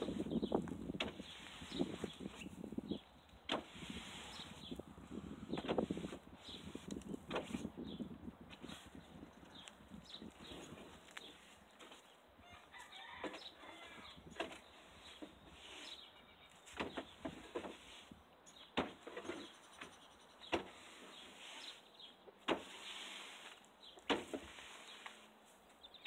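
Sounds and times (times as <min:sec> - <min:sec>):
metal tool scraping wooden floor: 0:17.2 - 0:18.1, 0:22.5 - 0:25.3.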